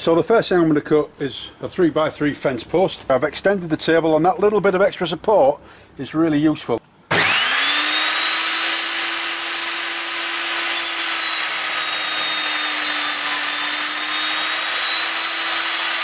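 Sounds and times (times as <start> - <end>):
table saw cutting wood: 7.1 - 16.0.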